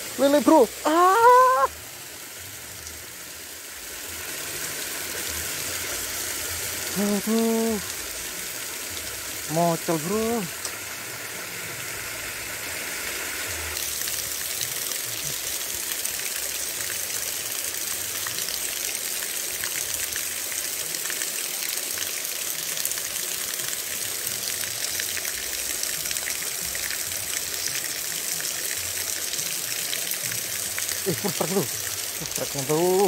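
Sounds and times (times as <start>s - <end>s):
stream cascading over rocks: 0.0s - 33.0s.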